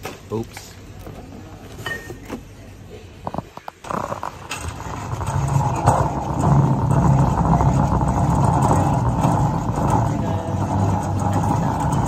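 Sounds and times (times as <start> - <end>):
shopping cart rattling on concrete: 3.9 - 12.0.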